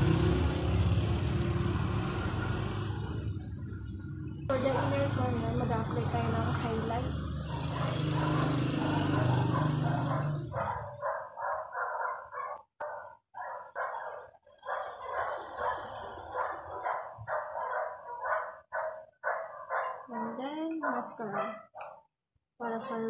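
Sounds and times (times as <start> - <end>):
dog barking: 4.5 - 5.4, 7.3 - 22.1, 22.7 - 23.0.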